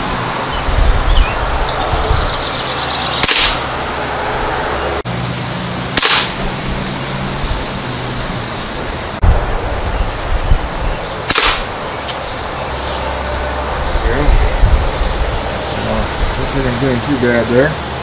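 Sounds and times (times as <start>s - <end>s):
air rifle shots: 3.2s - 3.7s, 6.0s - 7.0s, 11.2s - 12.2s.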